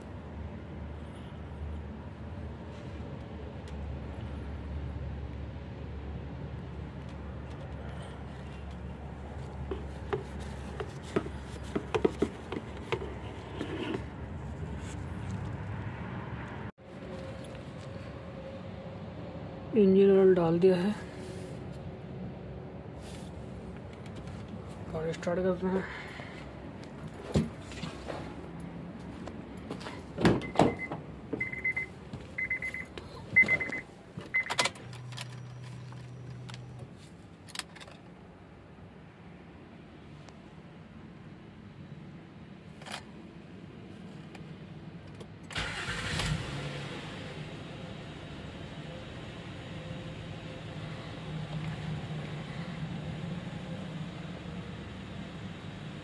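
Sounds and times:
car warning chime beeping: 30.4s - 34.6s.

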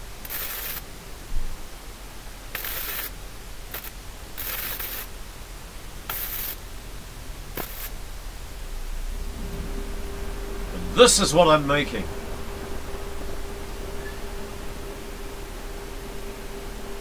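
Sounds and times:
welding arc crackling: 0.0s - 1.1s, 2.4s - 8.7s.

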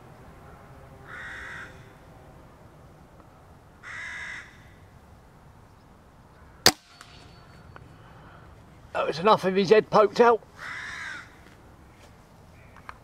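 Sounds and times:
crow cawing: 1.0s - 2.0s, 3.8s - 4.8s, 10.6s - 11.5s
air rifle shot: 6.6s - 7.4s.

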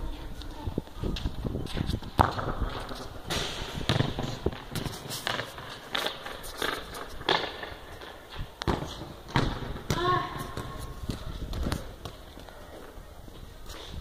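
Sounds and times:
ball bouncing on concrete: 1.1s - 12.6s.

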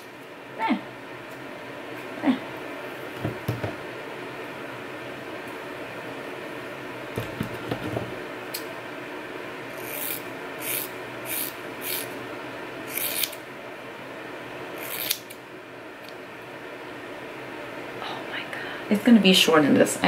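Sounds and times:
scissors cutting hair: 9.8s - 12.1s, 12.9s - 13.4s, 14.8s - 15.4s.

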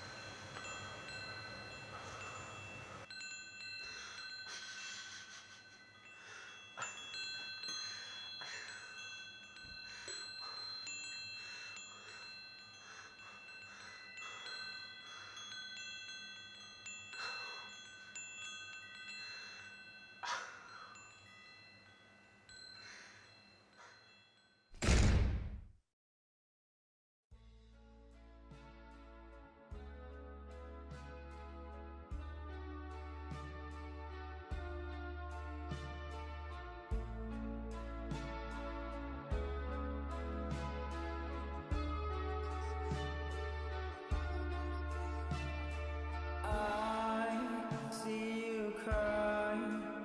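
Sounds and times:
chimes ringing: 0.0s - 24.7s
loud deep hit: 24.8s - 25.6s.

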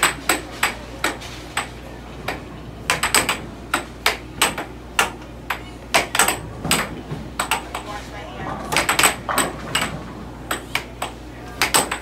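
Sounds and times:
air hockey puck clacking: 0.0s - 12.0s.

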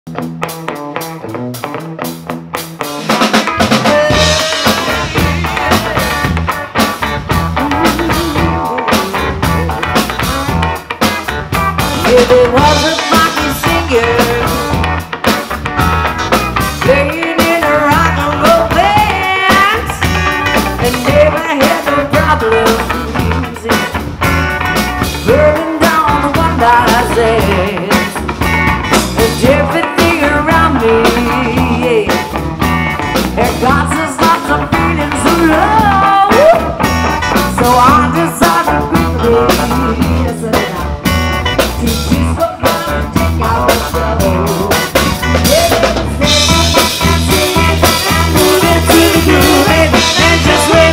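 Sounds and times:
drums: 0.1s - 50.9s
electric bass: 0.1s - 50.9s
electric guitar: 0.1s - 50.9s
keyboards: 3.1s - 50.9s
woman singing: 3.8s - 6.3s, 7.5s - 10.3s, 12.0s - 15.0s, 16.8s - 24.0s, 25.2s - 28.2s, 29.1s - 32.4s, 33.2s - 50.9s.

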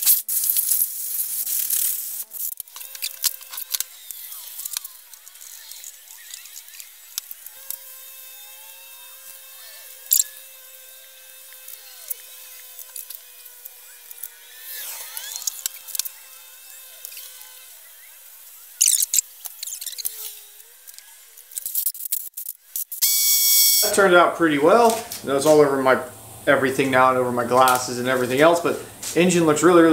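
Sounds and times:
spray bottle squirts: 0.0s - 3.8s
faint high whine: 23.0s - 29.9s.

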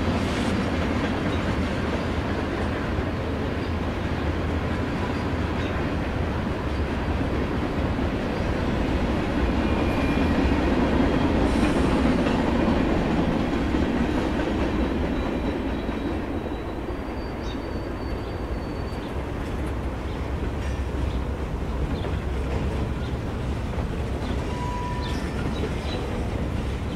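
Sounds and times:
model train rolling on track: 0.0s - 26.9s
faint high wheel squeal: 9.6s - 10.6s, 14.7s - 19.3s, 24.3s - 26.1s.

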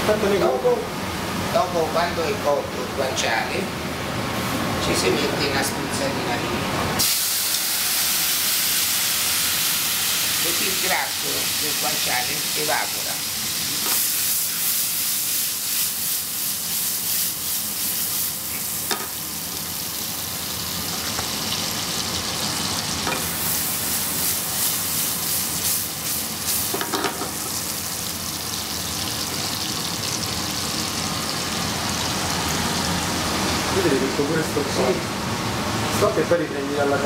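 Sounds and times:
meat sizzling in a pan: 7.0s - 33.2s.

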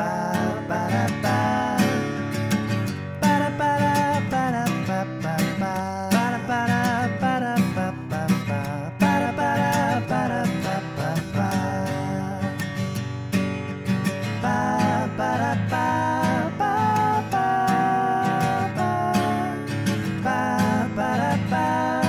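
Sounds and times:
strummed acoustic guitar: 0.0s - 22.0s.

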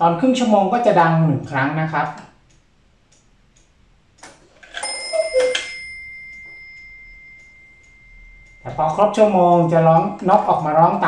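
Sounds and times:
clock ticking: 0.0s - 11.0s
clock mechanism click: 2.0s - 11.0s
high bell strike: 4.8s - 10.2s.

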